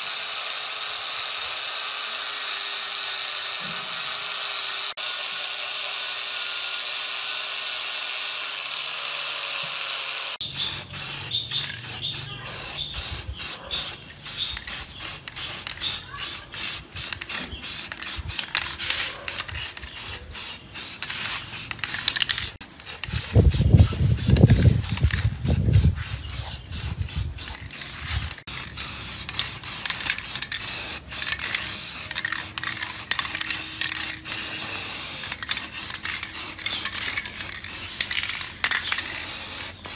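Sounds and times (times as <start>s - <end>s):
angle grinder on metal: 0.0s - 10.4s
spray paint can hissing: 9.0s - 39.9s.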